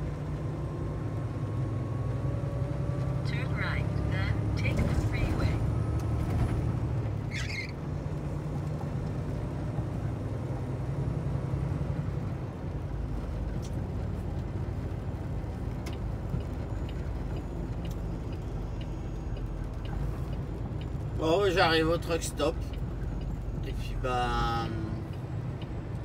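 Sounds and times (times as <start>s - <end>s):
diesel truck engine running: 0.0s - 26.0s
road noise: 0.0s - 26.0s
brief squeak: 7.3s - 7.8s.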